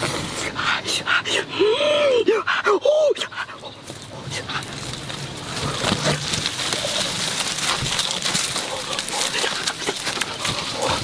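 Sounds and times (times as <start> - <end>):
leaves and branches rustling: 3.2 - 11.0.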